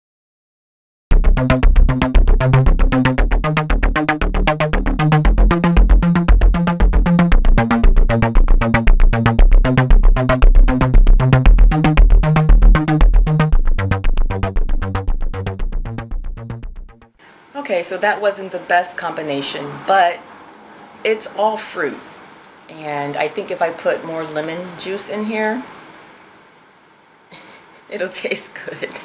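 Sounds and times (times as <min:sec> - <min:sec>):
electronic music with fast beat: 0:01.1 - 0:17.2
synth bass line: 0:01.1 - 0:17.2.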